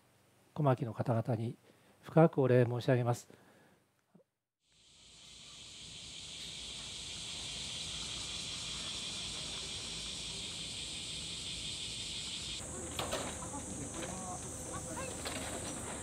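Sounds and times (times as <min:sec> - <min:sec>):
cicada chorus: 0:04.7 - 0:16.0.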